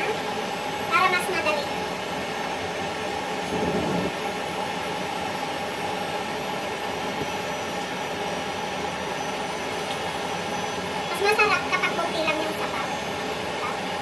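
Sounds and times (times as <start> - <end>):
steady rushing noise: 3.4 - 4.3.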